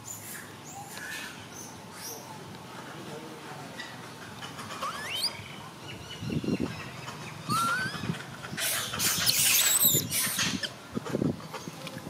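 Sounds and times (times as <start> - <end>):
macaques squealing: 4.5 - 5.6, 6.8 - 10.8.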